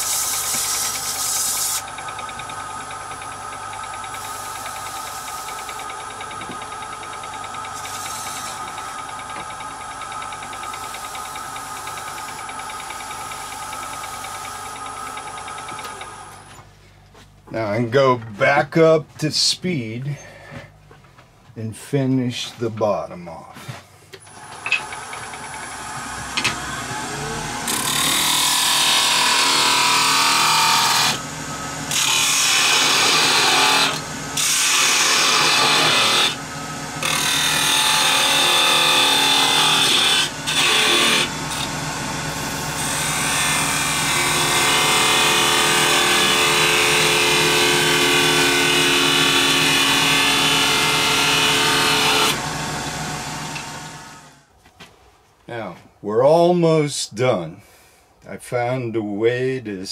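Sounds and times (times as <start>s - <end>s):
gouge cutting spinning wood: 0.0s - 16.5s, 24.3s - 54.3s
lathe motor humming: 0.0s - 16.6s, 24.2s - 54.5s.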